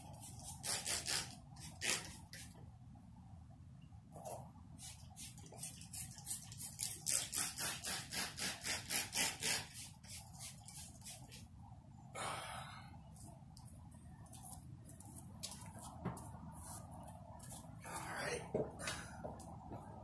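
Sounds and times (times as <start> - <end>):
spray bottle squirts: 0.4 - 2.2, 4.8 - 11.2.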